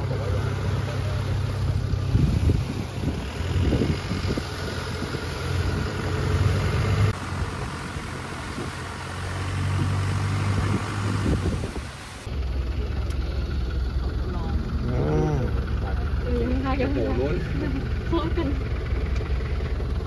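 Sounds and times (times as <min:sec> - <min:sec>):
boat engine droning: 0:00.0 - 0:20.0
wind: 0:00.0 - 0:20.0
water noise: 0:01.4 - 0:12.3.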